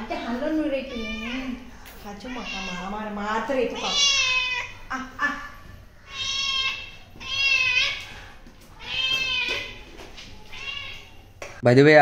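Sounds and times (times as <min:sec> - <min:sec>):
cat meowing: 0:00.8 - 0:01.6, 0:02.2 - 0:04.9, 0:06.0 - 0:11.3.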